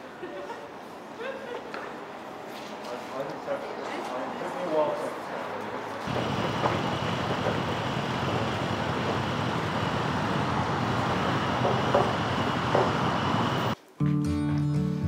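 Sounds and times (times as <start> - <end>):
road traffic: 1.8 - 13.8.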